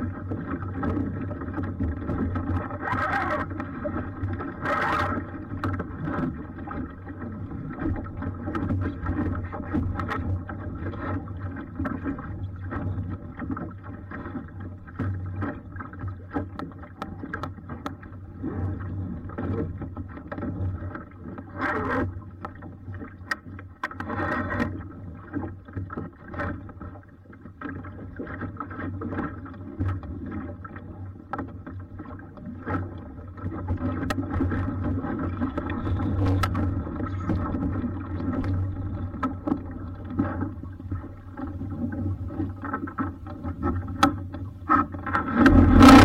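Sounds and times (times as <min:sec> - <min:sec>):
water rushing along hull: 0:00.0 - 0:46.0
clicks of lines and fittings: 0:35.6 - 0:36.7, 0:43.8 - 0:45.5.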